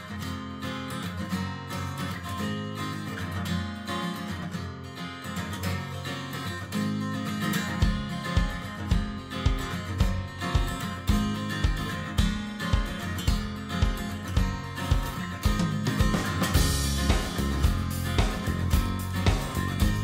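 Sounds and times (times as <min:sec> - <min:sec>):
strummed acoustic guitar: 0:00.0 - 0:20.0
low drum beat: 0:13.8 - 0:20.0.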